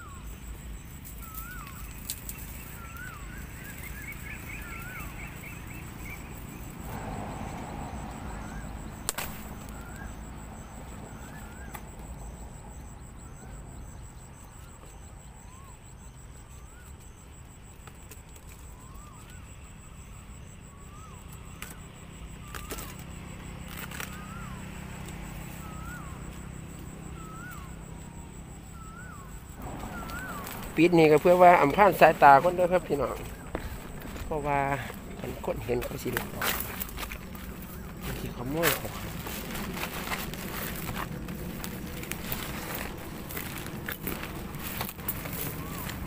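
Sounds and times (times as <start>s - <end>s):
bird chirping: 0.0s - 12.4s, 25.4s - 46.0s
rustling leaves and grass: 0.0s - 15.6s, 16.2s - 46.0s.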